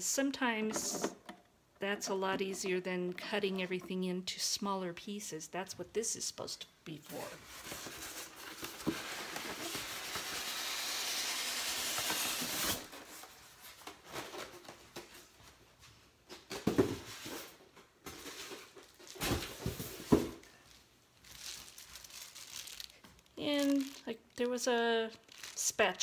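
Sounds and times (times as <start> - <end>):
packaging scraping rustle: 18.2 - 26.0.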